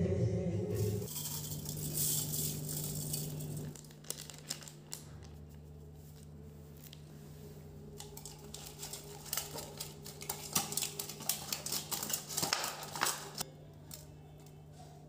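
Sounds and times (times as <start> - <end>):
steady low hum: 0.0 - 15.0
vegetables squelching in a bowl: 7.9 - 14.0.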